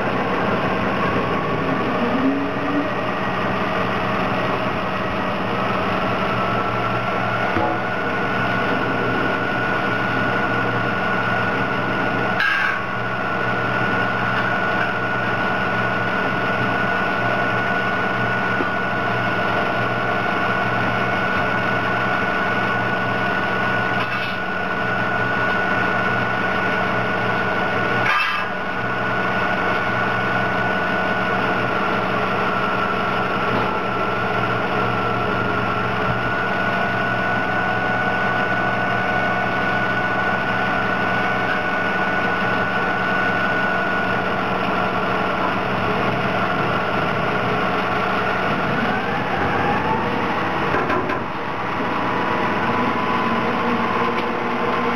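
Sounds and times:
diesel engine idling: 0.0 - 54.9
high engine whine: 0.0 - 54.9.

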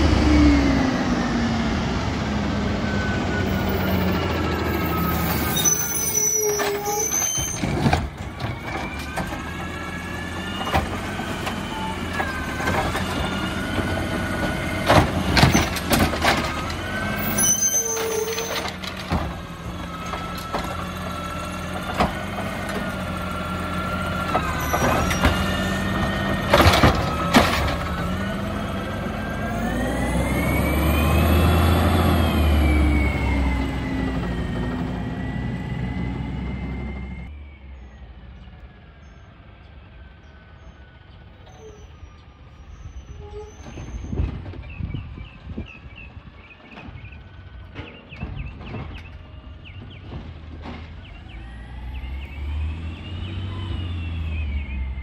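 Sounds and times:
diesel engine running: 0.0 - 5.6, 7.6 - 41.4
clanks and bangs of cart: 7.4 - 9.6, 10.5 - 20.9, 24.2 - 28.2, 46.6 - 51.3.

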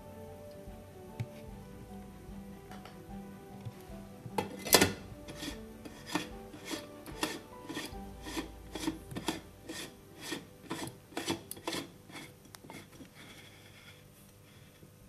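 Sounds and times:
rasping scrapes in metal sleeve: 5.3 - 14.0.

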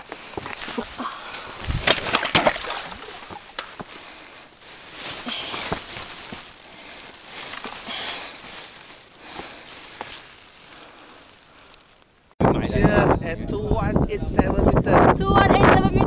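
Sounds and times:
footsteps on rock: 0.0 - 11.9
person breathing: 0.1 - 1.7, 3.7 - 12.0.

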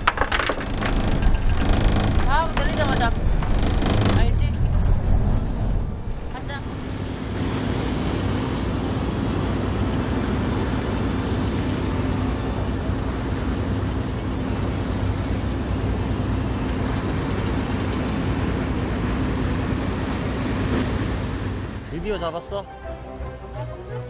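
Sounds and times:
boat engine running: 0.0 - 24.0
churning wake: 0.0 - 24.0
wind rushing: 1.7 - 11.7.

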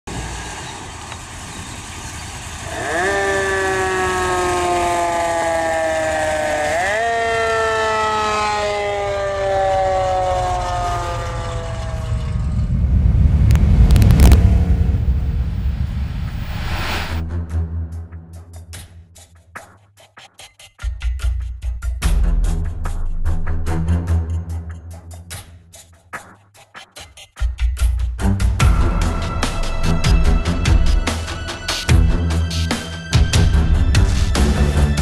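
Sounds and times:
fire truck siren: 2.7 - 14.4
low rumble: 10.7 - 17.5.

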